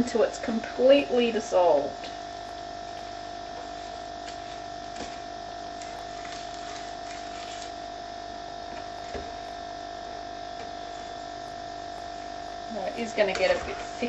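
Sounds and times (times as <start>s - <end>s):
electrical hum with whine: 0.0s - 14.0s.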